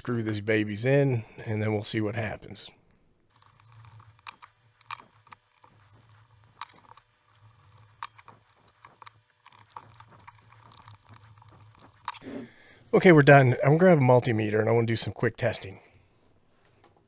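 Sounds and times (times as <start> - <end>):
screwdriver clicking and scraping metal: 3.3 - 12.4.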